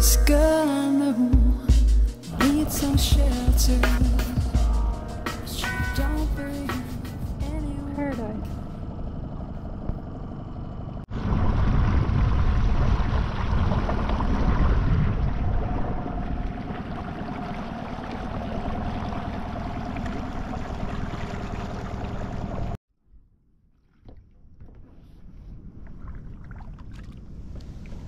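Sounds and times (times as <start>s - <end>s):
wind on microphone: 11.1s - 17.3s
water rushing: 11.2s - 22.8s.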